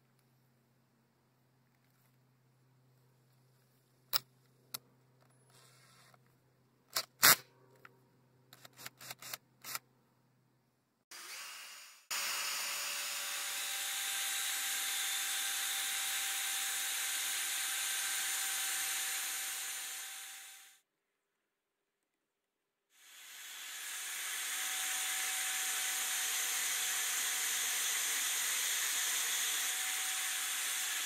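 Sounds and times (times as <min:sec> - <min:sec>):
drill whirring: 0:11.1 - 0:20.8, 0:23.0 - 0:31.0.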